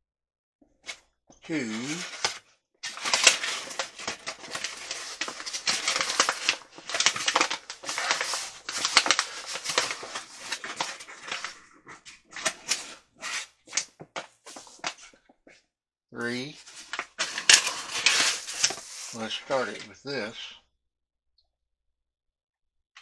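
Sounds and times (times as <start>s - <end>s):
paper bag crinkling: 1.5s - 13.8s, 16.4s - 19.9s.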